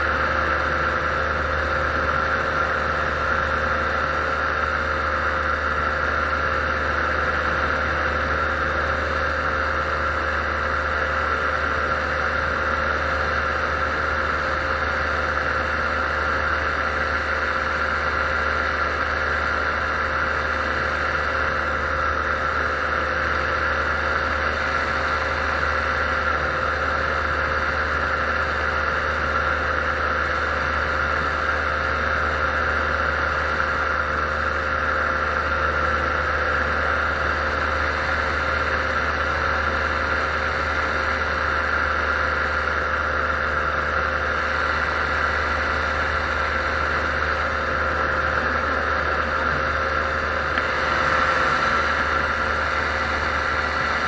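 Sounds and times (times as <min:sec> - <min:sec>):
paramotor engine drone: 0:00.0 - 0:54.0.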